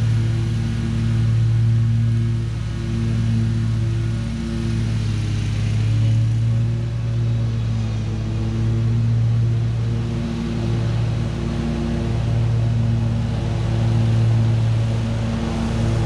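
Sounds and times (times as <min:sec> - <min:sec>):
riding lawn mower engine running: 0:00.0 - 0:16.0.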